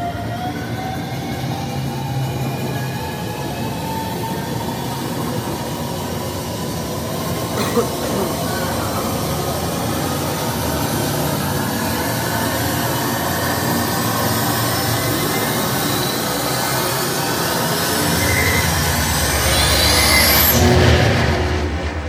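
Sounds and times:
rushing sound over speakers: 0:07.6 - 0:22.0
rising whine: 0:08.3 - 0:22.0.

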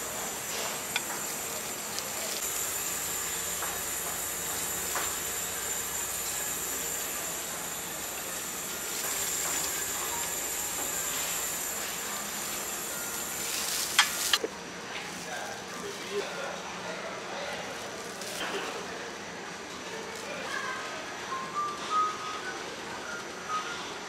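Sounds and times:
faint high whine: 0:00.0 - 0:14.4
hissing room noise: 0:00.0 - 0:16.2.

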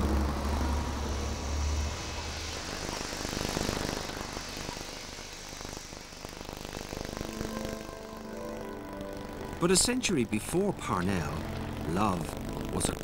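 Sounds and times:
traffic noise: 0:00.0 - 0:03.0
deep engine rumble: 0:07.2 - 0:13.0.

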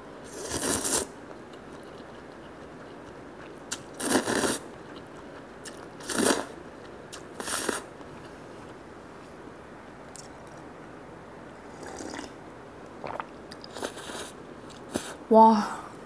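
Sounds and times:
noodles slurping: 0:04.0 - 0:05.0, 0:05.7 - 0:06.5.

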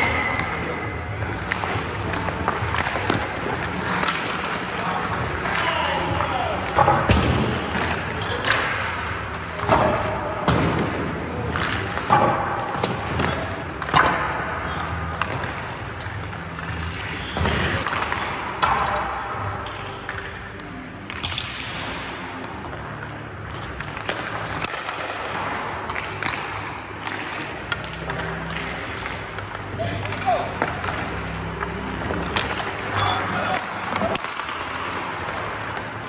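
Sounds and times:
sticks striking pucks: 0:00.0 - 0:36.0
skate blades scraping ice: 0:01.3 - 0:05.7.

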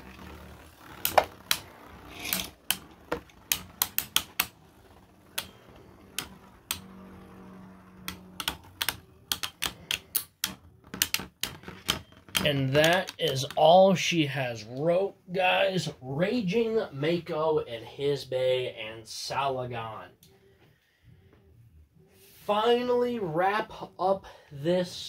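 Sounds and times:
plastic spinning tops clacking: 0:00.0 - 0:13.8.

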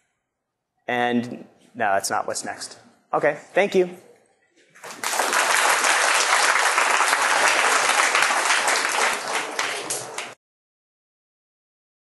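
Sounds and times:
audience applauding: 0:04.8 - 0:10.4.

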